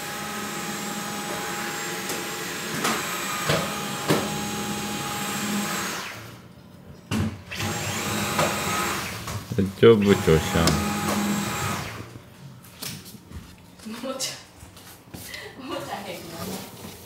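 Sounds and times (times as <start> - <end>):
vacuum cleaner whining: 0.0 - 6.4, 7.5 - 12.3.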